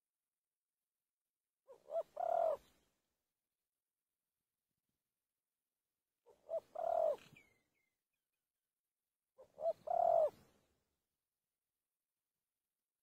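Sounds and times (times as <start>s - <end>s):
dove cooing: 1.7s - 2.7s, 6.3s - 7.6s, 9.4s - 10.6s.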